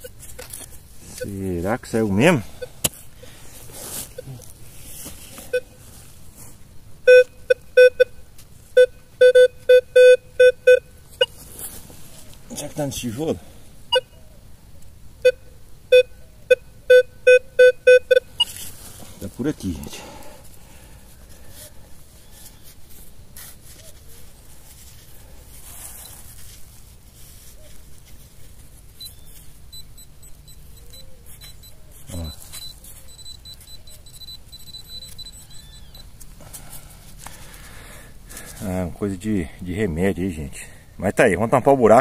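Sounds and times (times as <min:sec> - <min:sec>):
metal detector beeping: 0:00.0 - 0:03.0, 0:05.3 - 0:05.9, 0:07.0 - 0:08.2, 0:08.8 - 0:11.4, 0:13.9 - 0:14.2, 0:15.2 - 0:20.2, 0:28.8 - 0:36.8
hand digging in soil: 0:00.1 - 0:06.6, 0:11.2 - 0:13.3, 0:18.4 - 0:29.6.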